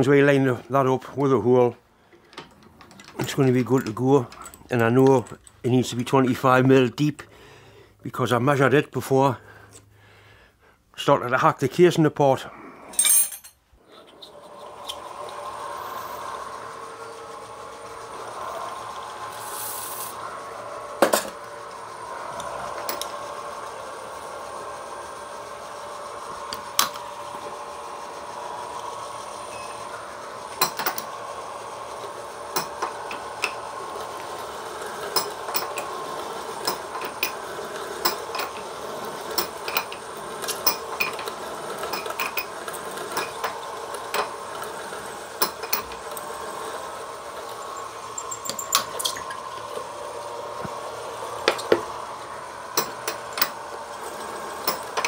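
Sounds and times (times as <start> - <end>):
machine spindle humming: 13.8 - 55.0.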